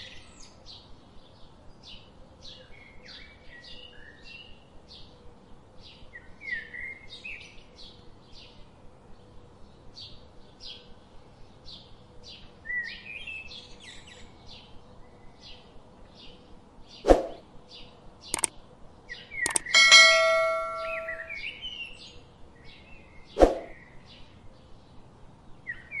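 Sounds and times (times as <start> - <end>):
notification click and ding: 19.5 - 21.4.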